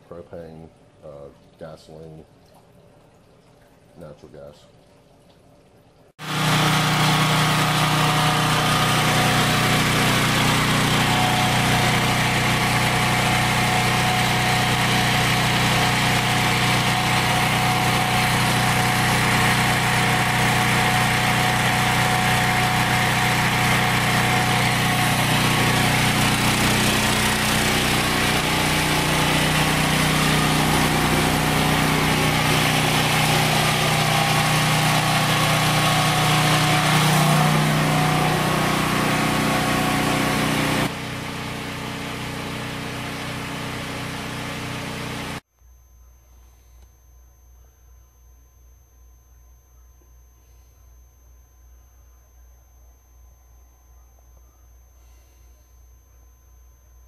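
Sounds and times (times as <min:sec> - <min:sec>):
generator engine running: 0:06.2 - 0:45.4.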